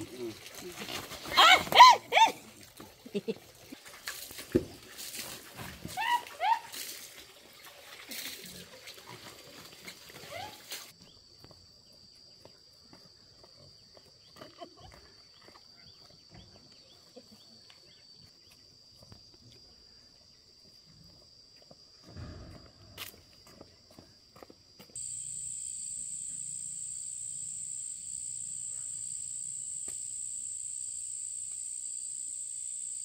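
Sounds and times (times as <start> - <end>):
high-pitched insect drone: 25.0 - 33.0.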